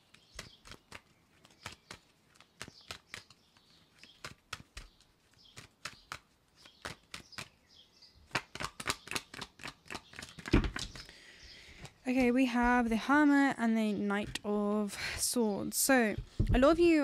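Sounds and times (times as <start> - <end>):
cards being shuffled: 0.0 - 7.6, 8.3 - 13.1.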